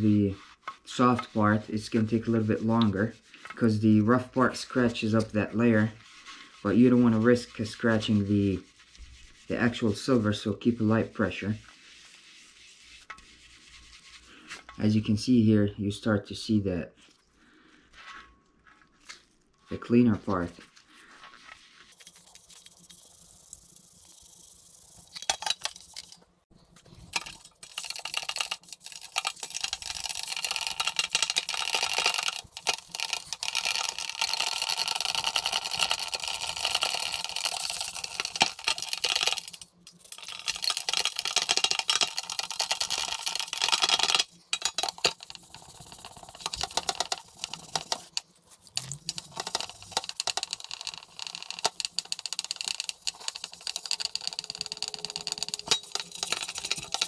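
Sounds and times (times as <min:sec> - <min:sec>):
sponge scrubbing metal plate: 0:00.0 - 0:14.7, 0:20.5 - 0:26.1, 0:27.0 - 0:57.0.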